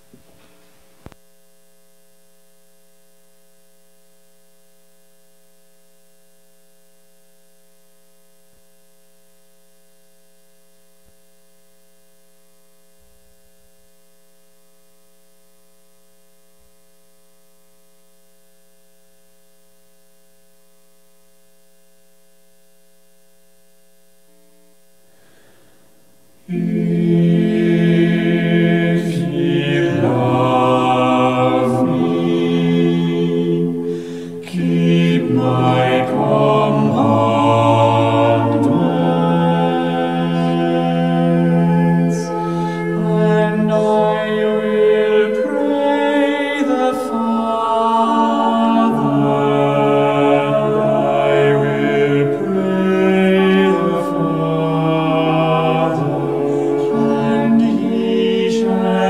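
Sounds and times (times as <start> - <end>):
electrical hum: 0.0 - 59.0
faint steady tones: 0.0 - 59.0
recorded choir singing: 26.4 - 59.0.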